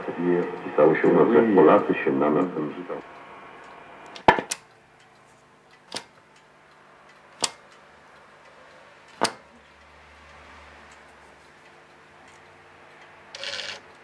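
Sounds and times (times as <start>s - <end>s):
faint radio hum: 0.0s - 4.1s
radio switch clicks: 3.7s - 4.8s, 5.7s - 6.2s, 7.4s - 7.8s, 9.1s - 9.5s.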